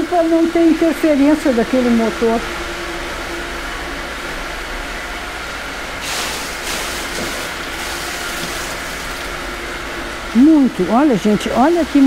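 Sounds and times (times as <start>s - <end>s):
motor humming: 6.4s - 12.0s.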